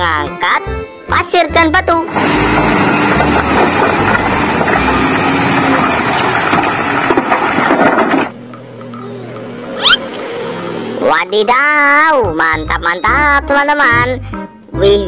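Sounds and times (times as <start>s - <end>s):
loader engine under load: 1.9s - 13.2s
rocks clattering against steel bucket: 2.2s - 9.0s
short rising tone: 9.0s - 11.1s.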